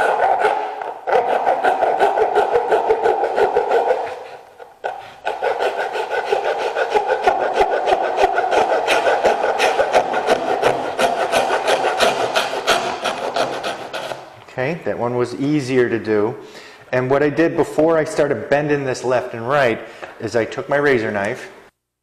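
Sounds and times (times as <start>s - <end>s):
hacksaw sawing plastic: 0.0s - 14.3s.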